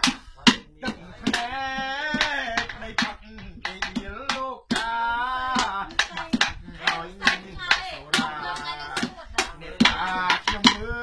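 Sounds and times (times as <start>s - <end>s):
man singing unaccompanied: 0.0s - 11.0s
hand claps keeping time: 5.6s - 10.9s.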